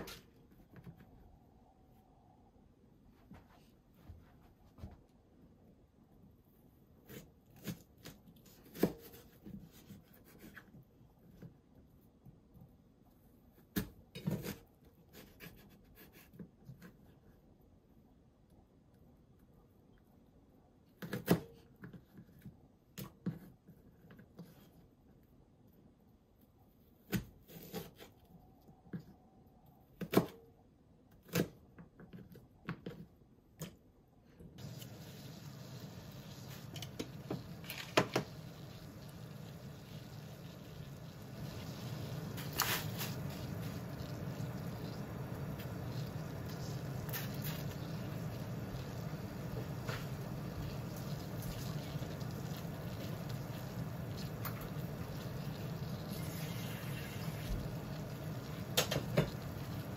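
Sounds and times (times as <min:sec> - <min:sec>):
water boiling in a pot: 0:34.6 - 0:59.9.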